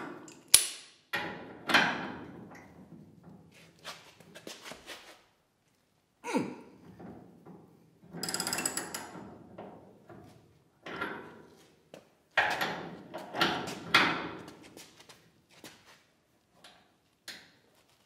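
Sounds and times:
metal tool creaking and clunking: 0:06.8 - 0:11.5.

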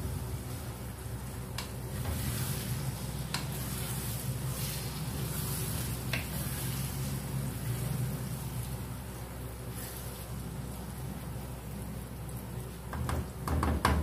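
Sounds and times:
masala sizzling in a pan: 0:00.1 - 0:12.9
wooden spatula stirring: 0:01.4 - 0:08.8
spatula knocking against pan: 0:12.9 - 0:14.0.

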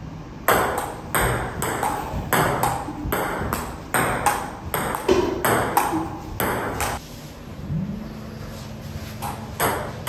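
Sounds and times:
table tennis ball hits: 0:00.5 - 0:07.0, 0:09.2 - 0:10.0.

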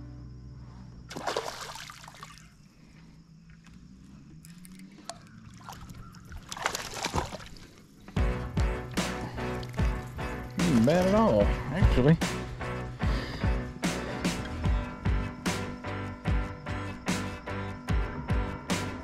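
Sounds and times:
fish splashing at water surface: 0:01.1 - 0:02.5, 0:04.5 - 0:07.8.

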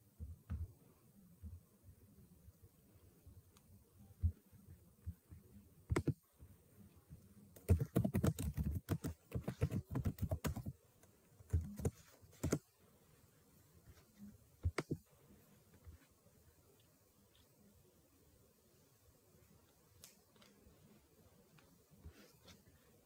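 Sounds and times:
typing on computer keyboard: 0:05.9 - 0:06.2, 0:07.6 - 0:10.8, 0:11.5 - 0:12.6.

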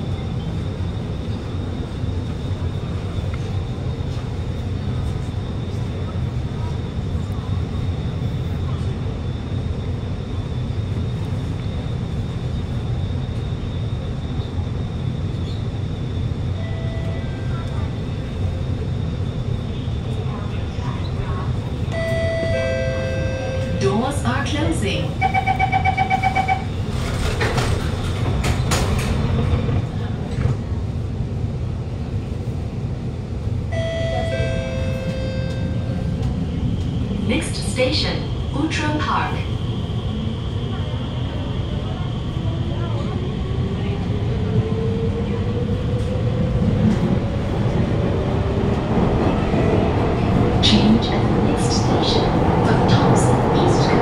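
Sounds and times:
metro car low hum: 0:00.0 - 0:54.0
train rumble in tunnel: 0:00.0 - 0:54.0
train doors clunking shut: 0:25.3 - 0:30.7.

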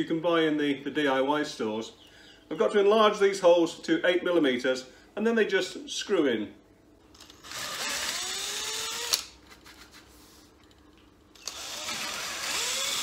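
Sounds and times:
cordless drill drilling wood: 0:07.4 - 0:09.3, 0:11.4 - 0:13.0.

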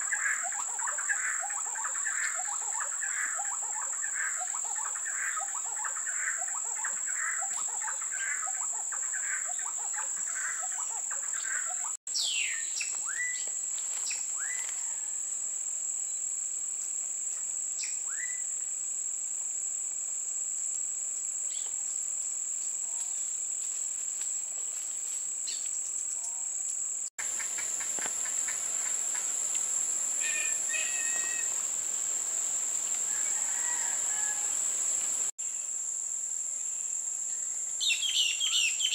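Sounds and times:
high-pitched insect drone: 0:25.0 - 0:38.9
chirping calls: 0:30.2 - 0:31.6
descending whistled calls: 0:30.2 - 0:31.6.

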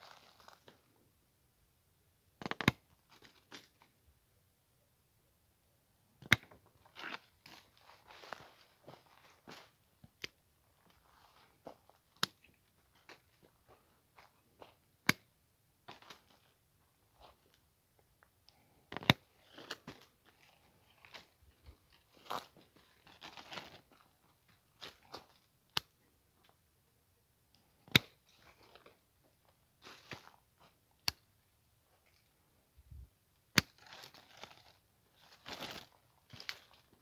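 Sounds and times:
dry leaves and twigs crunching: 0:00.0 - 0:00.8, 0:06.6 - 0:09.8, 0:19.0 - 0:25.4, 0:29.8 - 0:30.7, 0:33.6 - 0:37.0.

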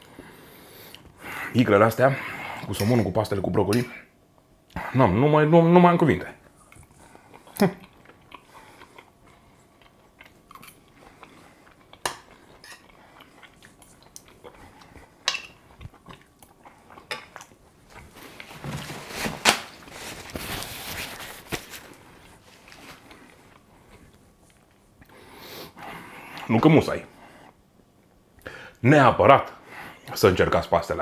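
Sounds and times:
chewing: 0:06.5 - 0:18.5
paper towel rustling: 0:17.9 - 0:23.2.

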